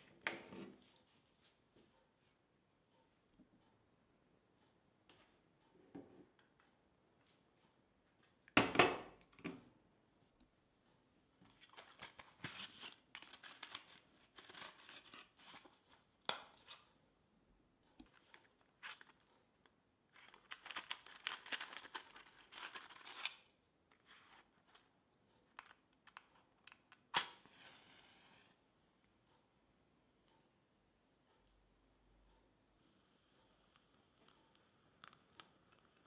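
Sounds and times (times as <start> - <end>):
plastic packaging crinkling and tearing: 20.2 - 23.3.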